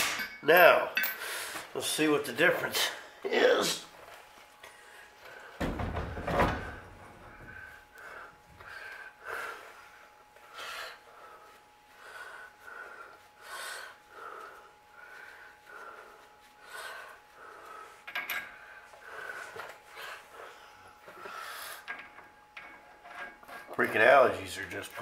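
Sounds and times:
man's wheezy breathing: 7.3s - 22.0s.

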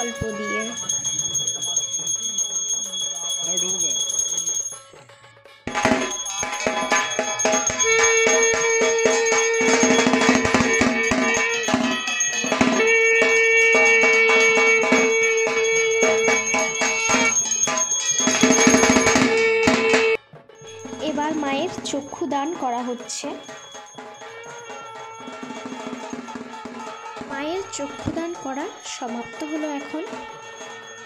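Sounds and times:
long held tone: 0.0s - 4.8s, 5.7s - 31.0s
bell strokes: 0.0s - 5.0s, 5.7s - 31.0s
fast drum strokes: 5.7s - 31.0s.

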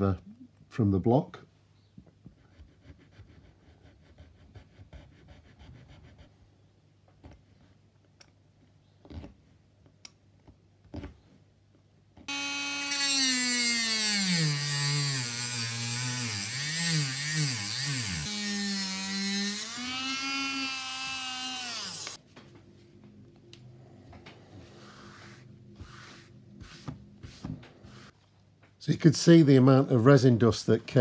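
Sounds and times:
rotary tool whining: 12.3s - 22.2s.

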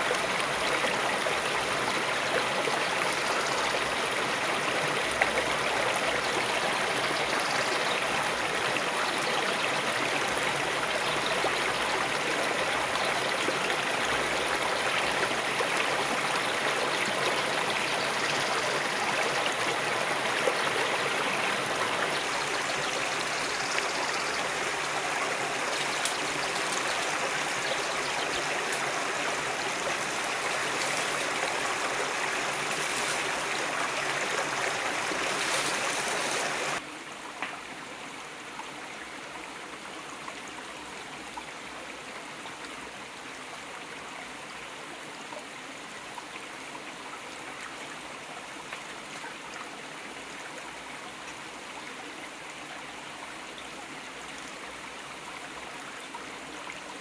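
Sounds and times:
river flowing: 0.0s - 44.2s.

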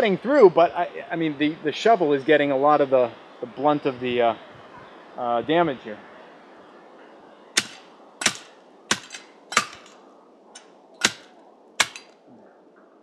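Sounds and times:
shovel blade chopping branches: 7.6s - 10.0s, 11.0s - 12.1s.

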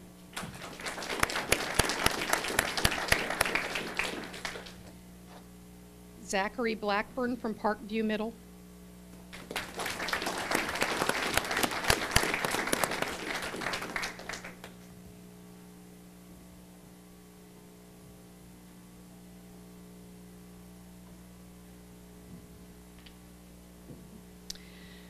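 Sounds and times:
steady low hum: 0.0s - 25.0s
audience applauding: 0.4s - 4.8s, 9.3s - 14.8s.

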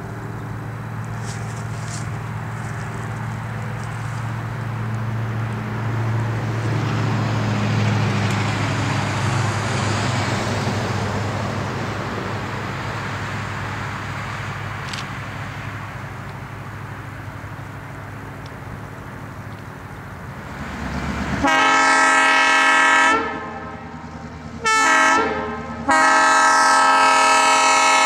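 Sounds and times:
diesel locomotive engine drone: 0.0s - 28.0s
car passing by: 1.0s - 15.8s, 20.4s - 24.4s.

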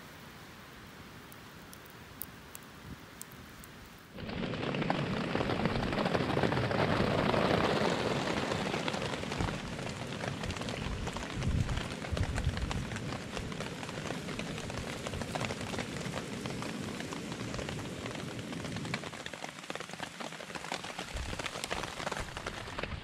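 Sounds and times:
faint steady hiss: 0.0s - 4.2s
heavy rain: 0.0s - 23.0s
small ticks: 1.3s - 3.9s.

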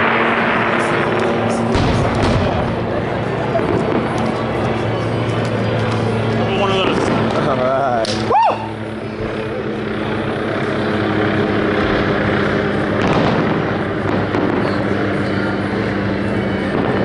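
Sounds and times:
steady low hum: 0.0s - 17.0s
firework sharp report: 1.5s - 4.2s, 12.9s - 15.6s
fireworks crackling: 12.9s - 15.3s.

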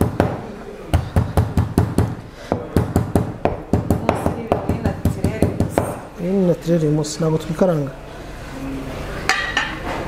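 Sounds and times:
metal mallet pounding on cutting board: 1.0s - 6.0s.

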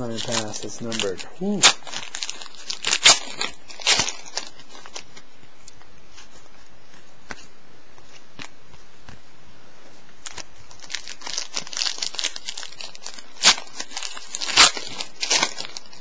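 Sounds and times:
plastic wrapper crinkling: 0.0s - 5.8s, 10.2s - 16.0s.

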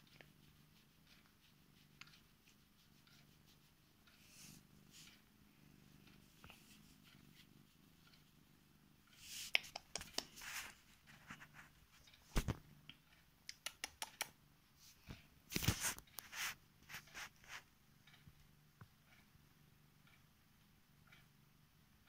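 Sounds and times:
hand stroking cat fur: 0.0s - 8.3s, 9.1s - 12.5s, 14.8s - 17.7s.

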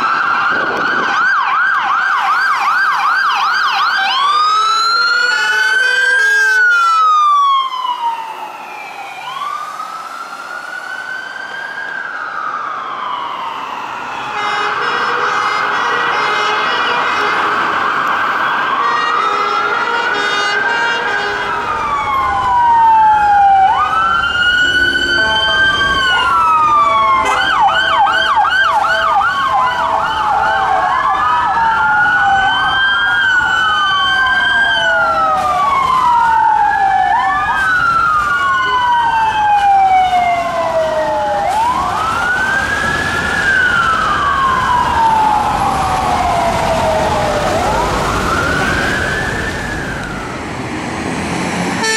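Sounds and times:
fast siren yelp: 0.0s - 50.6s
police sirens wailing: 0.0s - 51.9s
steady multi-note tone: 24.6s - 26.0s.

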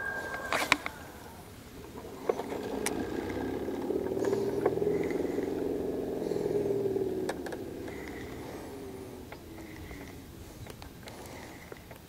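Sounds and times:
motorboat engine passing: 0.0s - 12.0s
light clicks: 9.2s - 12.0s.

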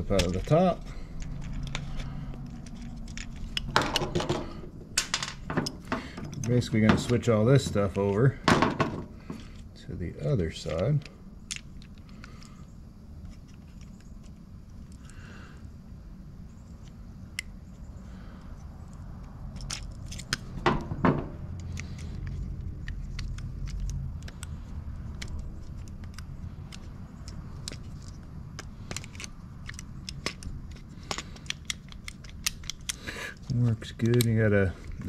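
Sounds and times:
plastic parts clicking and tapping: 0.0s - 7.9s, 18.9s - 35.0s
low steady hum: 0.0s - 35.0s
loud knocks: 20.6s - 21.4s.

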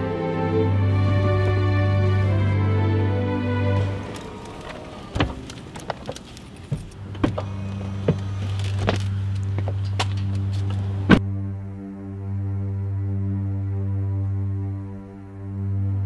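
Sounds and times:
soft music: 0.0s - 5.3s, 7.0s - 16.0s
low steady hum: 0.0s - 16.0s
truck door clicks and knocks: 5.1s - 9.0s.

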